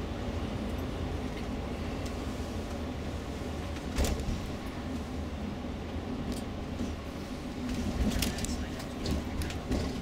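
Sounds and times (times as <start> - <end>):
coach engine and road rumble: 0.0 - 10.0.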